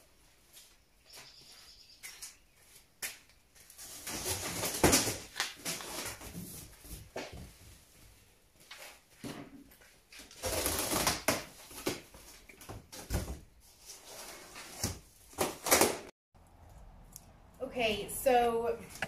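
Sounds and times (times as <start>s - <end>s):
artificial tree branches rustling: 2.6s - 9.2s.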